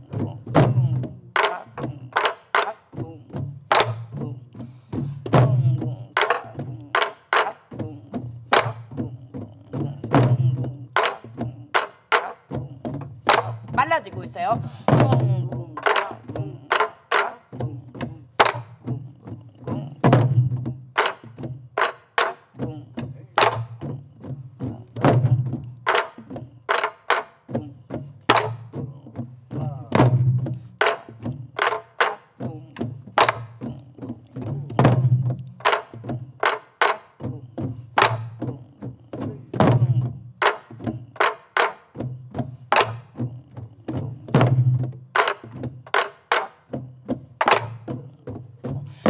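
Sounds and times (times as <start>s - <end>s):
deep drum booms: 0.1s - 2.2s, 3.0s - 7.0s, 7.7s - 11.7s, 12.5s - 16.7s, 17.6s - 21.6s, 22.6s - 25.8s, 27.6s - 31.5s, 32.4s - 36.4s, 37.2s - 41.0s, 43.0s - 45.9s.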